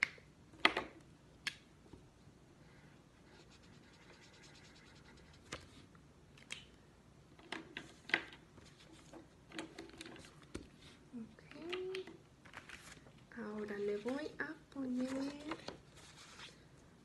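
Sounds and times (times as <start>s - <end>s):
marker scratching on paper plate: 3.2s - 5.8s.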